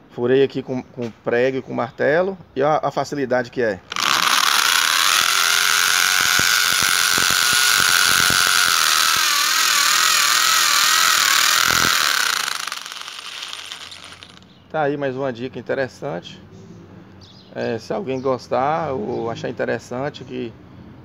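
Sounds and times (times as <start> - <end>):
electric drill whining into tile: 3.9 - 14.4.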